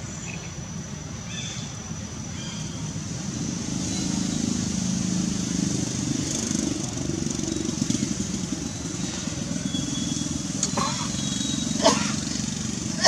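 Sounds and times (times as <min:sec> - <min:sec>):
small engine running: 0:02.9 - 0:13.0.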